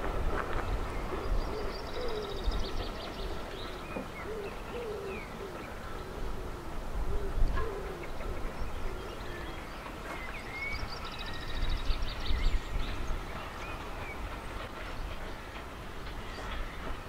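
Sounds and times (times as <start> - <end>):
pigeon cooing: 4.2 - 8.3
small birds chirping: 8.0 - 17.0.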